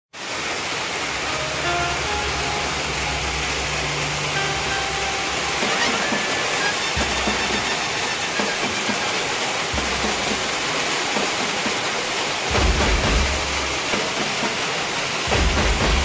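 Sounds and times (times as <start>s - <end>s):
heavy rain pouring: 0.1s - 16.0s
low rumbles: 12.0s - 16.0s.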